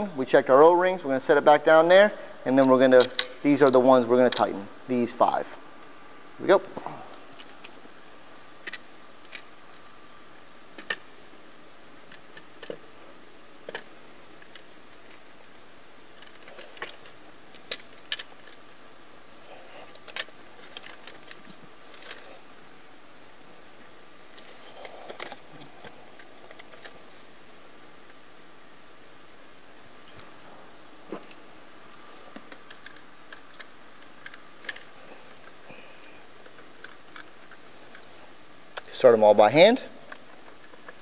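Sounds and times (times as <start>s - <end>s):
metal parts clicking and tapping: 16.2s - 18.6s, 32.4s - 35.6s.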